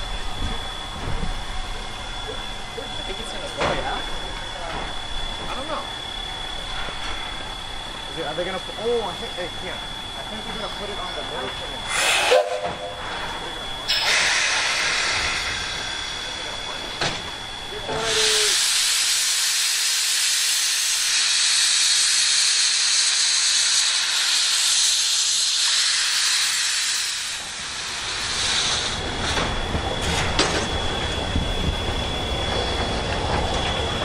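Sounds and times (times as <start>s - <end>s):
locomotive rumble: 0.0s - 19.5s, 26.5s - 34.0s
steam locomotive hissing steam: 8.3s - 34.0s
locomotive clanks: 28.9s - 34.0s.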